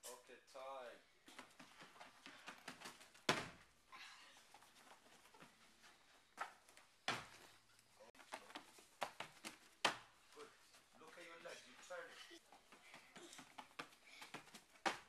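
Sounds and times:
hands and feet thudding on mat: 0:01.3 - 0:03.7, 0:04.4 - 0:07.6.

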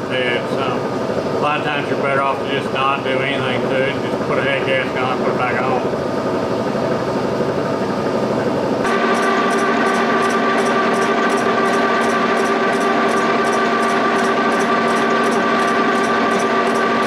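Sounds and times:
steady whine: 0:06.9 - 0:17.0
milling machine running: 0:08.8 - 0:17.0.

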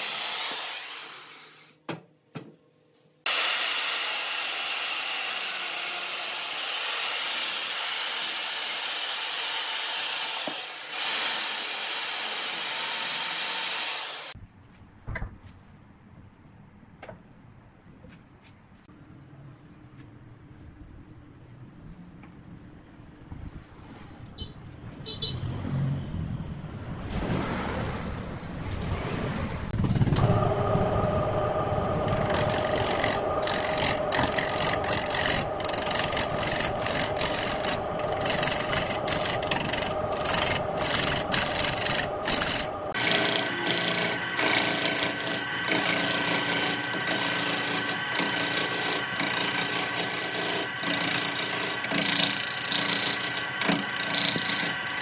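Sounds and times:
lathe motor whine: 0:30.1 - 0:55.0
turning tool scraping wood: 0:32.0 - 0:55.0.

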